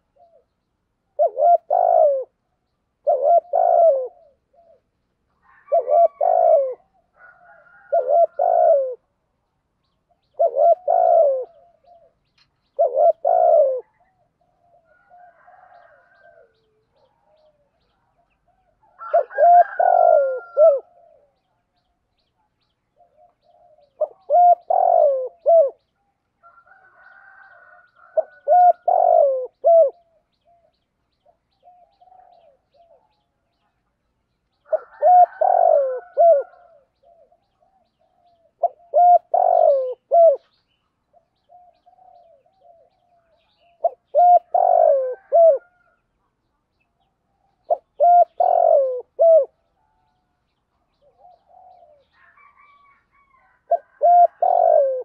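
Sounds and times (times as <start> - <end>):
dove cooing: 0.0 - 9.2, 10.1 - 21.6, 22.9 - 33.3, 34.6 - 46.0, 47.3 - 55.0.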